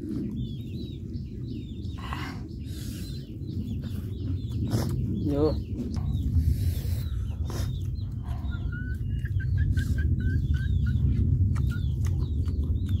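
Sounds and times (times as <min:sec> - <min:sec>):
birds chirping: 0:00.0 - 0:13.0
steady low rumble: 0:00.0 - 0:13.0
people eating with hands: 0:07.1 - 0:13.0.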